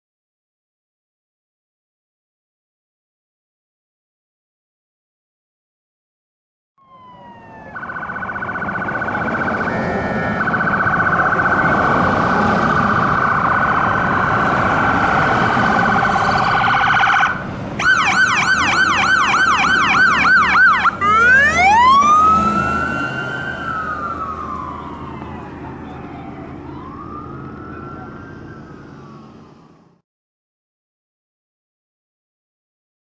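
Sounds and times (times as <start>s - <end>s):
electronic siren: 6.8s - 29.5s
truck engine and road noise: 6.8s - 30.0s.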